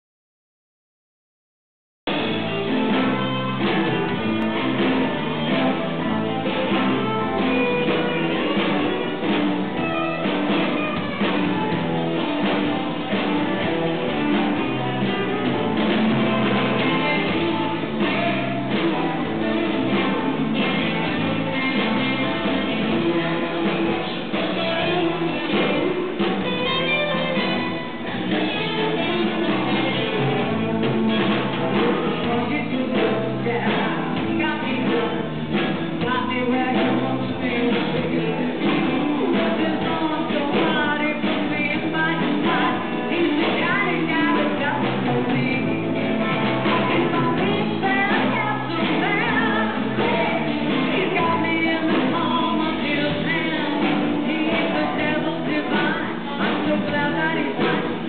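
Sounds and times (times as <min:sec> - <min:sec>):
live rock band playing: 0:02.1 - 0:58.0
woman singing into a microphone: 0:12.7 - 0:30.8, 0:31.7 - 0:58.0.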